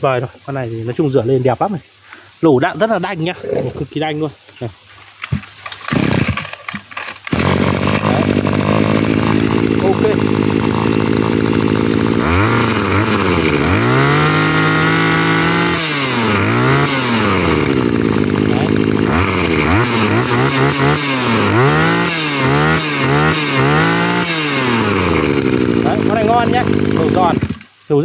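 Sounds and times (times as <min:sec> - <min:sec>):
brush cutter engine revving: 0:05.2 - 0:28.0.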